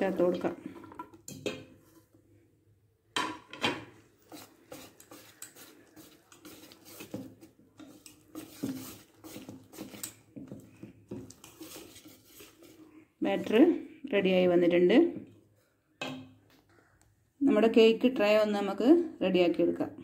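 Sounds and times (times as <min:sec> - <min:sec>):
whisk scraping a steel bowl: 0:04.2 - 0:10.6, 0:11.2 - 0:12.9.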